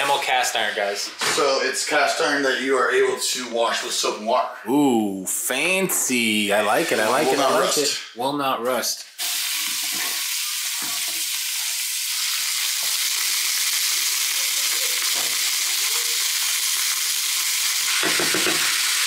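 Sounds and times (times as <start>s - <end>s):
onions sizzling in hot oil: 9.2s - 19.0s.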